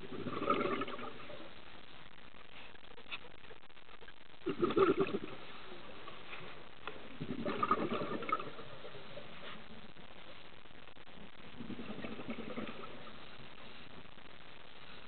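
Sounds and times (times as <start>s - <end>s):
regulator exhaust bubbles underwater: 0.0s - 2.0s, 4.3s - 6.0s, 6.8s - 14.6s
faint steady hiss: 0.0s - 15.0s.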